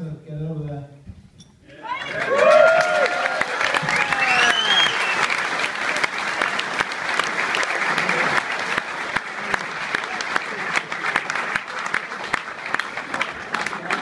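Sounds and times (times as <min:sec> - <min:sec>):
people whooping: 0:01.7 - 0:05.4
audience clapping: 0:01.7 - 0:14.0.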